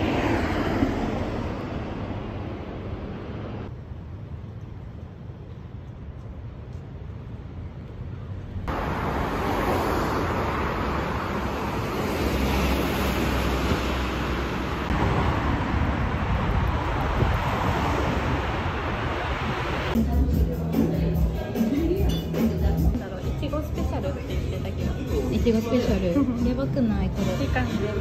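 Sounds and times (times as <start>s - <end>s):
street traffic: 0.0s - 28.0s
wind on microphone: 14.9s - 20.0s.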